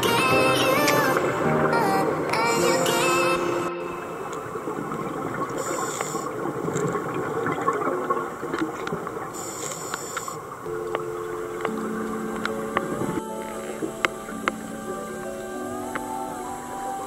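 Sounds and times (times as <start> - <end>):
music: 0.0 - 4.7, 10.7 - 17.0
regulator hiss: 0.0 - 6.7, 9.4 - 17.0
underwater bubbling: 0.0 - 17.0.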